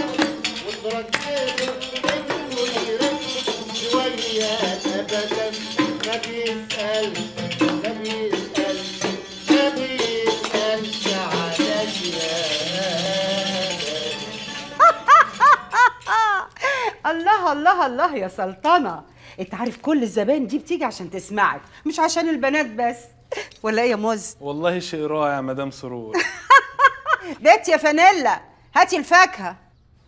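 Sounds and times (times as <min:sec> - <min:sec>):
hand clapping: 0:00.0 - 0:04.0, 0:07.5 - 0:08.0, 0:09.0 - 0:12.1
oud melody: 0:00.0 - 0:16.0
tambourine jingling: 0:00.0 - 0:16.8.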